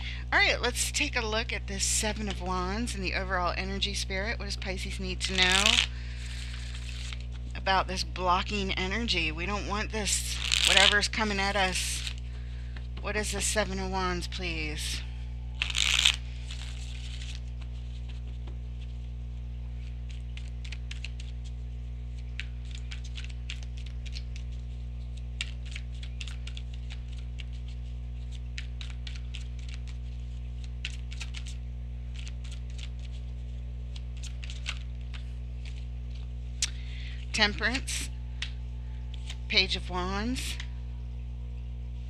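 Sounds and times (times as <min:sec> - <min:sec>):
low electrical hum: 0:00.0 - 0:42.0
cards shuffling and flicking: 0:05.2 - 0:07.5, 0:10.3 - 0:12.2, 0:15.6 - 0:36.8.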